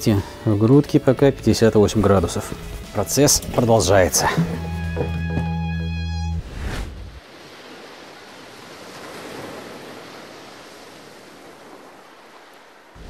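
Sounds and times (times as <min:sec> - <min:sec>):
sea surf washing on shore: 0:07.2 - 0:13.0.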